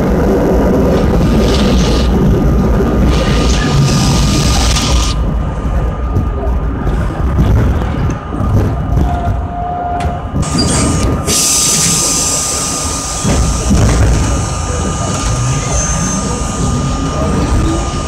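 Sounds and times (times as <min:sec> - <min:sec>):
subway train rumbling: 0:00.0 - 0:18.0
hiss: 0:11.3 - 0:13.7.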